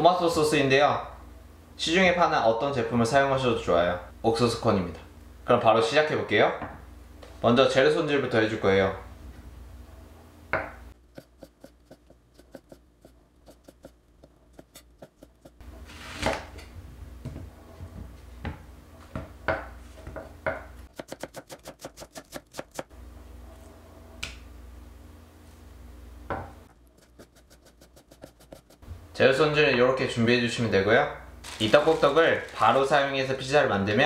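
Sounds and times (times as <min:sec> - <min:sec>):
knife chopping on cutting board: 0:10.6 - 0:16.6, 0:18.4 - 0:22.9, 0:26.3 - 0:28.8.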